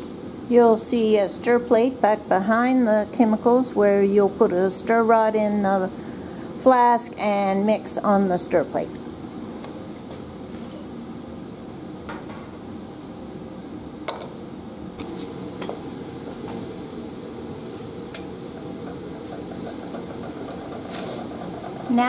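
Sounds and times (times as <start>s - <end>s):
fume hood fan hum: 0.0s - 22.0s
glassware knocks and clicks: 14.1s - 14.4s
ringing glass clink: 14.1s - 14.4s.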